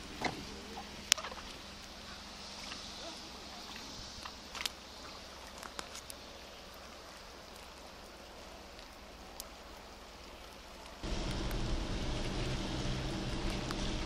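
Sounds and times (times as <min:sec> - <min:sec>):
steady rainfall: 0:00.0 - 0:14.0
loud low rumble: 0:11.0 - 0:14.0.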